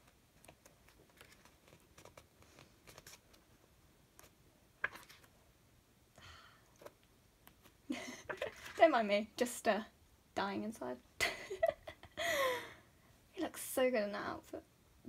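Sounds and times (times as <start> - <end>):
pages turning: 0.0 - 5.4, 6.8 - 8.8.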